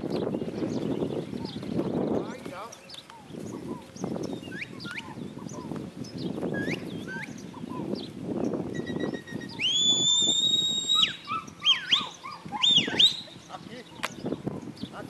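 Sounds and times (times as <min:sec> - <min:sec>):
herding whistles: 0:06.5 - 0:07.4, 0:08.7 - 0:13.4.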